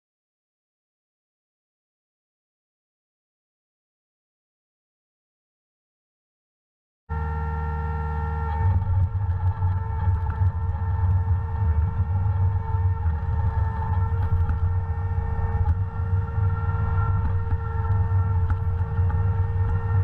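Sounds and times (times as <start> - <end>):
engine whine and rumble: 7.1 - 20.0.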